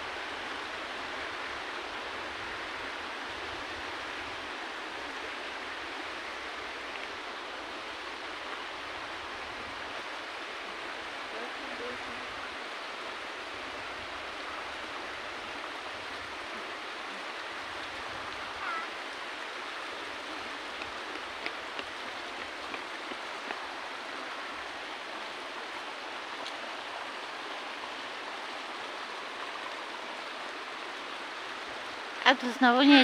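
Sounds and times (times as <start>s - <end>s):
stream water rushing: 0.0s - 33.0s.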